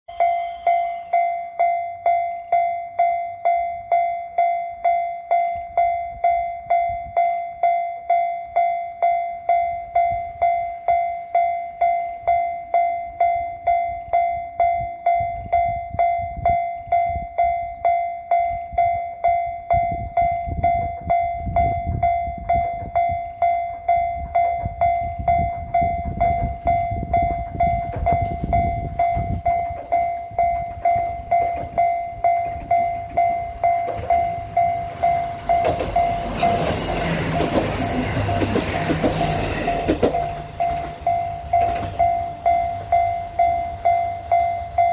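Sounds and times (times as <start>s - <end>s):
level crossing bell ringing: 17.4s - 44.9s
train rumble: 19.7s - 44.9s.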